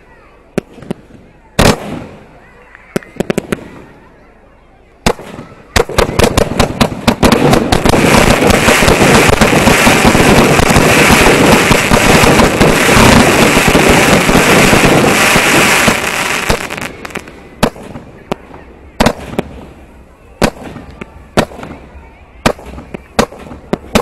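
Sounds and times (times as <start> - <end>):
fireworks barrage bangs: 0.5 - 4.1, 5.0 - 24.0
crackling bursts: 5.0 - 24.0.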